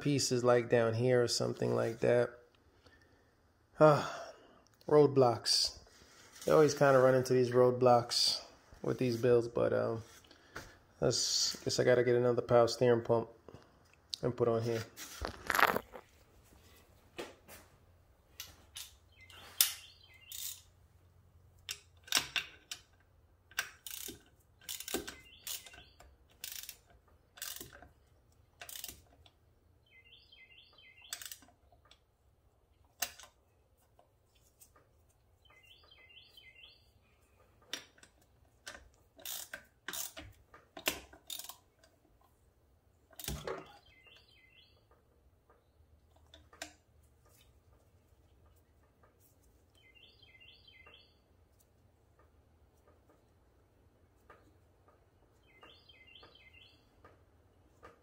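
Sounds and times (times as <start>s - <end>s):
high chirping: 35.4s - 37.2s, 49.8s - 51.2s.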